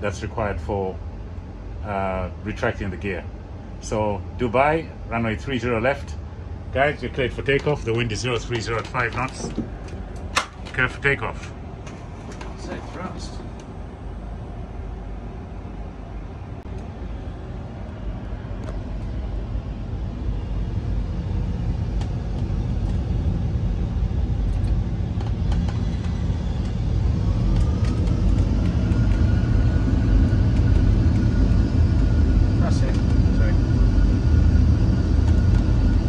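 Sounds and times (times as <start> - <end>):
jet engine whine: 0.0 - 36.0
jet engines low rumble: 0.0 - 36.0.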